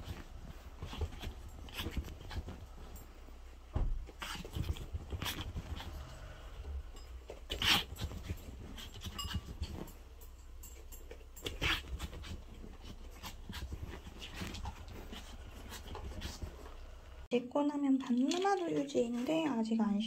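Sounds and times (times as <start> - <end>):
rustles and bumps on bed: 0.0 - 17.3
dogs panting: 10.6 - 17.0.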